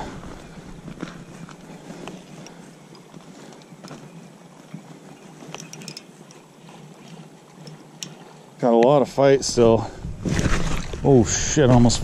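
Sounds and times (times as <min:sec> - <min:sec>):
footsteps on gravel: 0:00.0 - 0:06.0
fishing reel clicking: 0:05.5 - 0:06.4.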